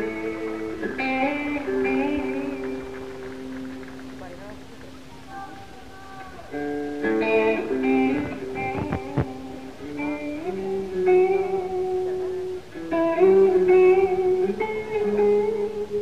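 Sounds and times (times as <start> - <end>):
electric guitar melody: 0.0 - 16.0.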